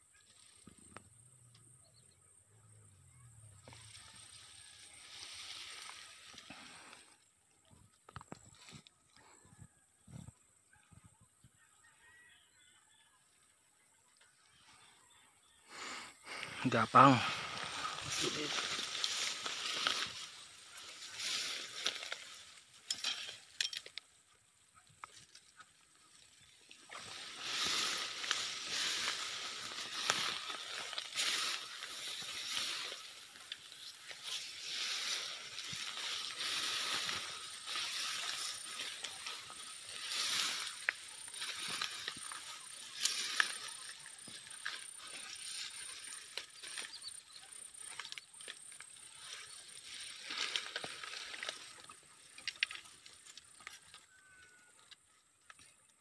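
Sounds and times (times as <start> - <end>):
grass and leaves rustling: 0.0 - 2.1, 3.1 - 9.4, 13.2 - 56.0
stems snapping: 18.1 - 24.1, 26.9 - 43.8, 47.6 - 54.0.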